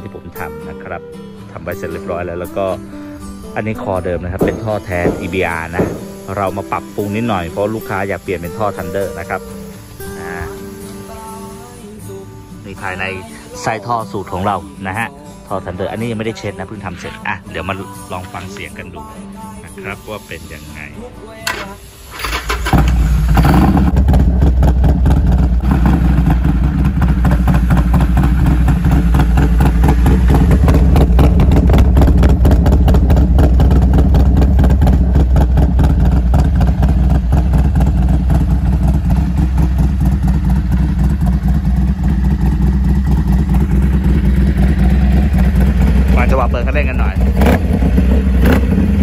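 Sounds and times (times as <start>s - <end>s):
motorcycle engine running: 4.3s - 11.8s, 22.2s - 49.0s.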